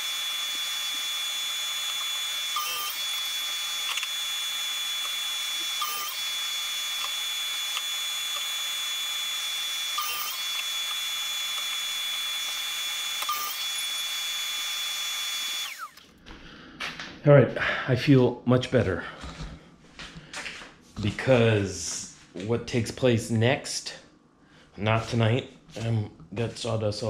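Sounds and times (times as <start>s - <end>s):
power tool whine: 0.0s - 16.1s.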